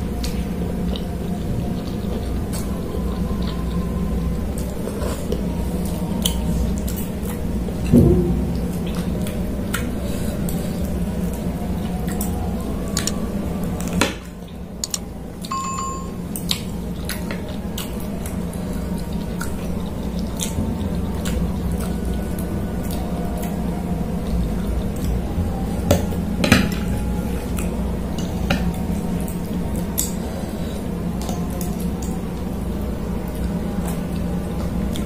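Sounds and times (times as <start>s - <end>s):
wet chewing and slurping: 0.0s - 7.9s, 8.5s - 15.5s, 16.3s - 35.0s
thump: 7.9s - 8.4s.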